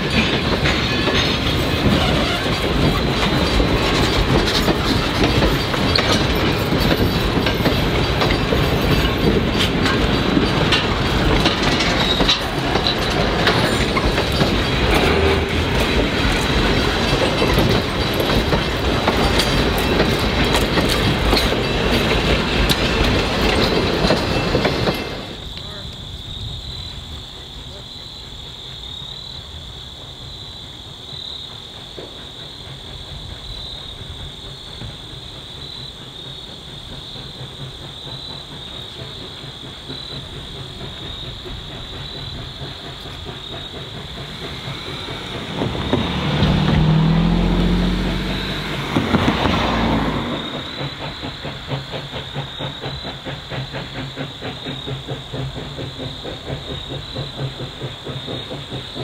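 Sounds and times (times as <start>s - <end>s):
insects chirping: 0.0s - 59.0s
steam locomotive chuffing: 0.0s - 59.0s
loud blast of steam: 42.9s - 58.8s.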